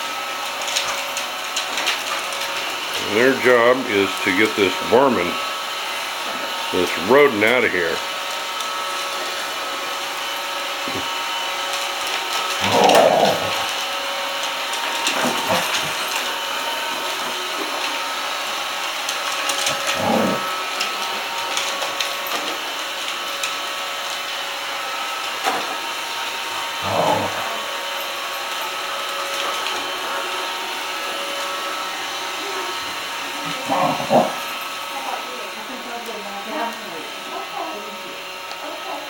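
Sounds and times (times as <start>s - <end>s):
robot vacuum hum: 2.7s - 21.5s, 25.5s - 28.2s, 28.8s - 35.5s.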